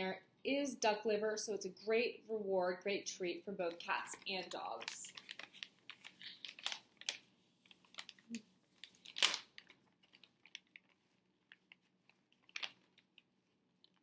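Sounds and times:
plastic crinkling and rustling: 0:03.8 - 0:14.0
plastic pouch ripping: 0:04.8 - 0:14.0.

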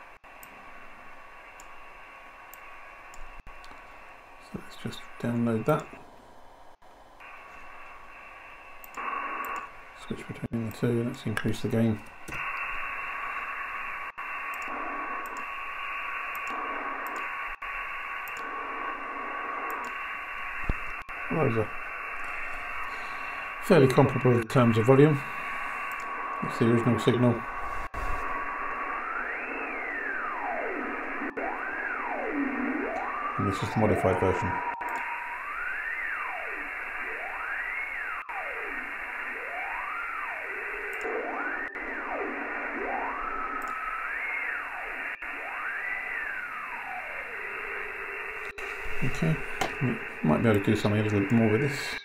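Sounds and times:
filtered hiss: 0:00.0 - 0:41.0, 0:42.0 - 0:52.0
tone gliding up and down: 0:26.0 - 0:47.4.

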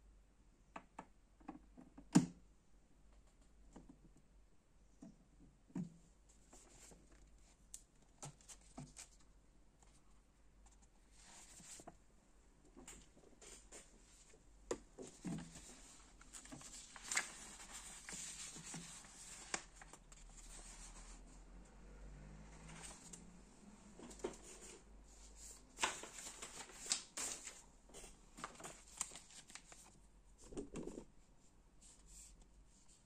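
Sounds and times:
paper sheets rustling: 0:15.0 - 0:21.2, 0:22.7 - 0:23.2, 0:24.0 - 0:30.0.

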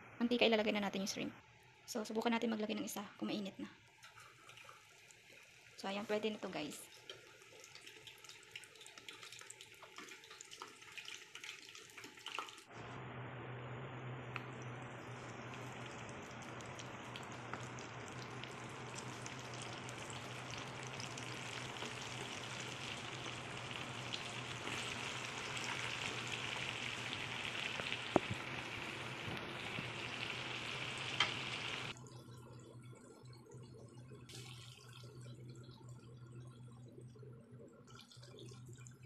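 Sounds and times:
food deep-frying in oil: 0:03.3 - 0:12.9, 0:14.3 - 0:32.0
faint low hum: 0:12.7 - 0:38.8.

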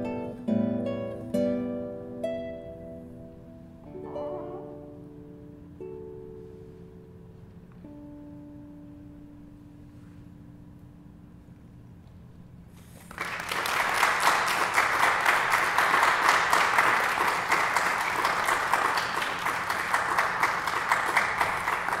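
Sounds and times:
audience applauding: 0:13.0 - 0:22.0.

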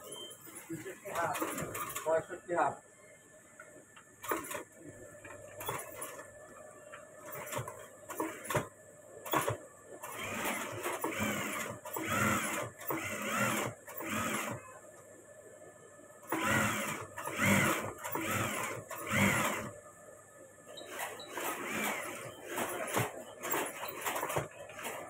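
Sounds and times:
sewing machine stitching: 0:01.0 - 0:02.2, 0:04.2 - 0:04.7, 0:05.5 - 0:06.3, 0:07.2 - 0:14.6, 0:16.3 - 0:19.7, 0:20.8 - 0:25.0.

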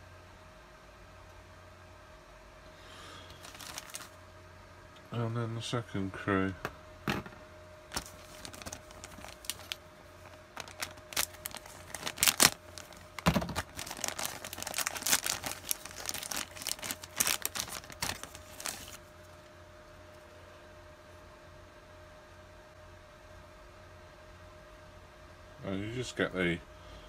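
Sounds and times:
plastic bag crinkling: 0:03.3 - 0:04.2, 0:07.9 - 0:19.1.

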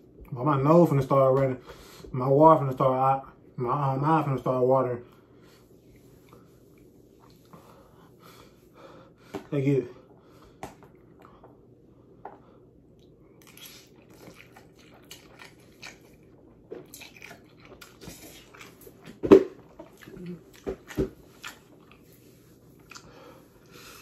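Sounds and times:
person chewing noodles: 0:05.6 - 0:08.0, 0:12.8 - 0:24.0.

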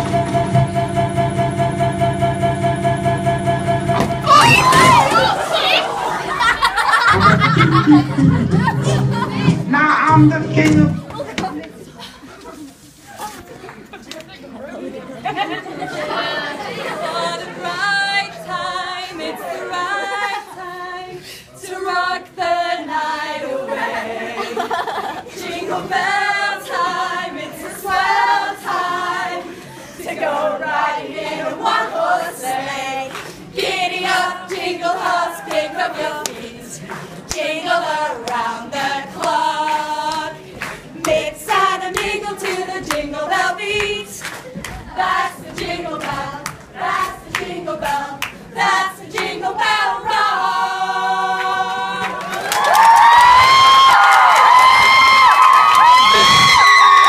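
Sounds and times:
group singing unaccompanied: 0:00.0 - 0:11.6, 0:15.3 - 0:52.5
hand claps: 0:41.9 - 0:43.1.

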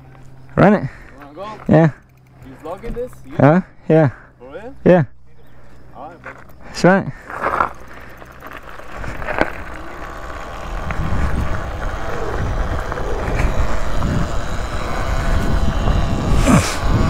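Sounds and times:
wind rumble: 0:05.4 - 0:17.0
tyres rolling on dirt: 0:05.8 - 0:17.0.

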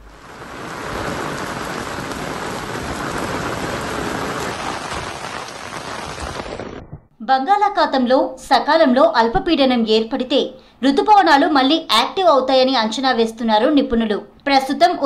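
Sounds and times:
heavy rain on pavement: 0:00.0 - 0:07.0.

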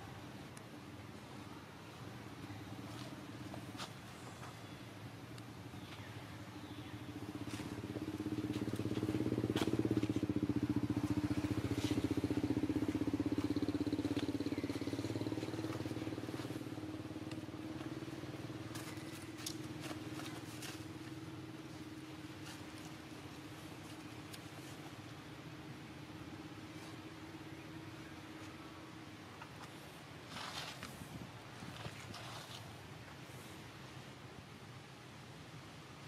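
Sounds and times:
vehicle engine passing by: 0:07.2 - 0:21.8.

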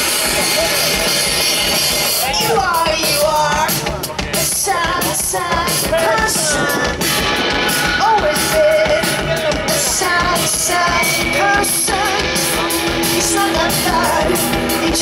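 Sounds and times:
distorted electric guitar: 0:00.0 - 0:15.0
drums with crashing cymbals: 0:00.0 - 0:15.0
woman singing: 0:02.2 - 0:07.0, 0:08.0 - 0:15.0.

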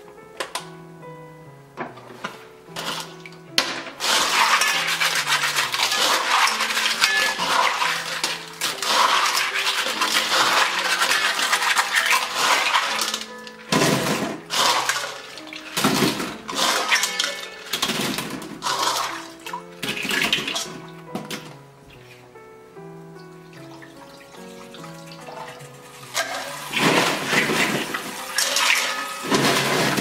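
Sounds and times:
soft background music: 0:00.0 - 0:30.0
clam shells clattering in bowl: 0:02.8 - 0:21.5, 0:24.4 - 0:30.0
water sloshing: 0:04.0 - 0:21.5, 0:23.6 - 0:30.0.

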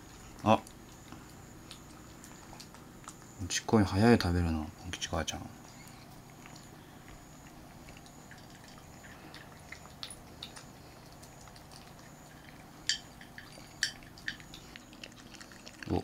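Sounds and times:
cats crunching kibble: 0:00.0 - 0:16.0
low steady hum: 0:00.0 - 0:16.0
kibble clicking against bowls: 0:05.7 - 0:16.0.

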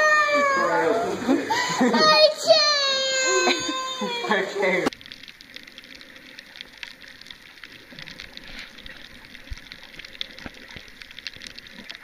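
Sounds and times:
underwater crackling hiss: 0:03.1 - 0:12.0
tiny underwater clicks: 0:04.9 - 0:12.0.

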